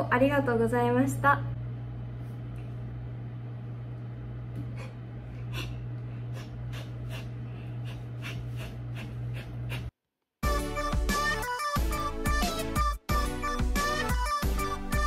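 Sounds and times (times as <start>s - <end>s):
low room hum: 0.0s - 9.9s
music: 10.4s - 15.0s.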